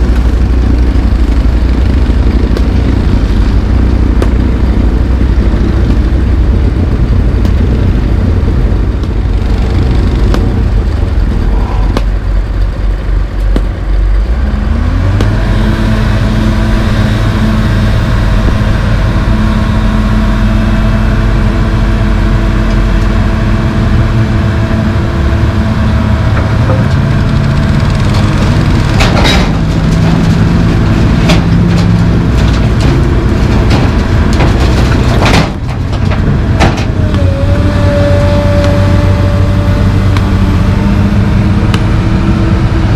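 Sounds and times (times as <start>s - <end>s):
dump truck backing up: 0.0s - 42.9s
excavator diesel engine: 0.0s - 42.9s.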